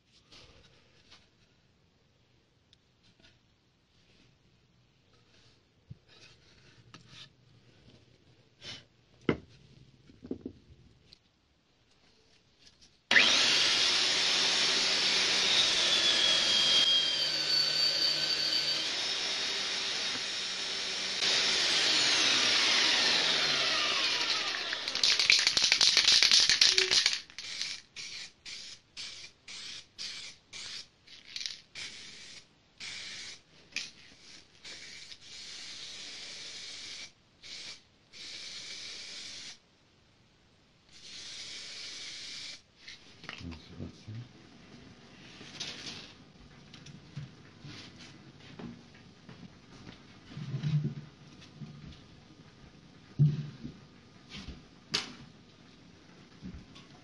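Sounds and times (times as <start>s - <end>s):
belt sander sanding wood: 13.1s - 25.2s
spray can ball rattling: 24.9s - 32.1s.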